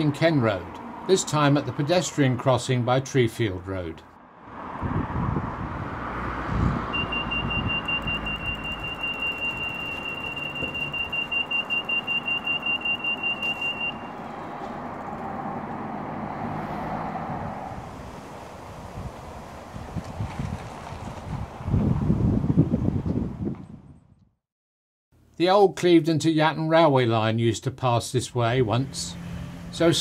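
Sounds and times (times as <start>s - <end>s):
road traffic passing: 0.0s - 23.0s, 28.5s - 30.0s
crossing signal beeping: 6.9s - 14.4s.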